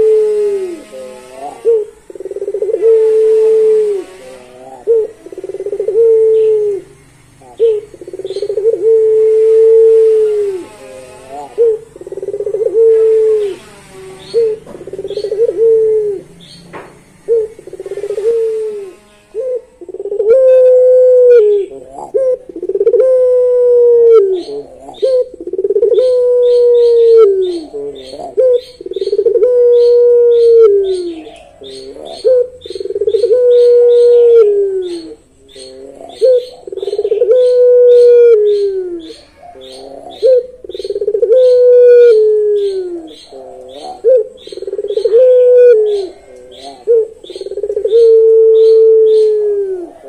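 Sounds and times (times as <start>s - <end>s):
dove cooing: 0.0s - 50.0s.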